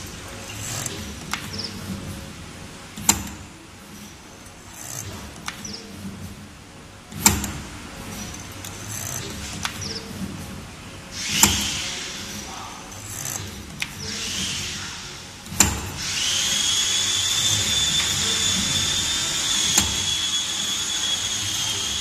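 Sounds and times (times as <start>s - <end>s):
machine servo whine: 11.1s - 15.3s, 15.9s - 22.0s
sharp tooling clacks: 11.2s - 14.9s, 15.5s - 22.0s.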